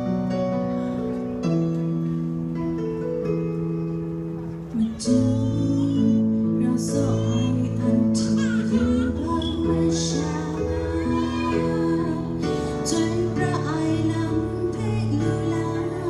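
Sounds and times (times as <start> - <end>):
instrumental backing music: 0.0 - 16.0
woman singing: 4.7 - 16.0.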